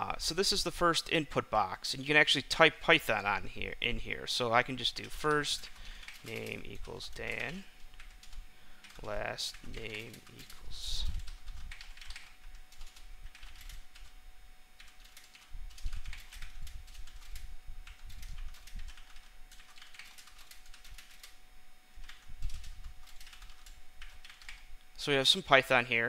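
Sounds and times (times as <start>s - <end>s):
keyboard typing: 5.0s - 14.2s, 14.8s - 21.4s, 22.0s - 24.6s.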